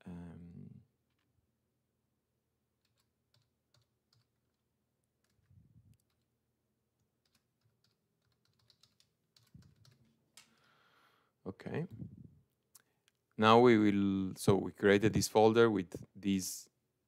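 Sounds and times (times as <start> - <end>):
computer keyboard typing: 2.8 - 6.3, 7.0 - 10.7.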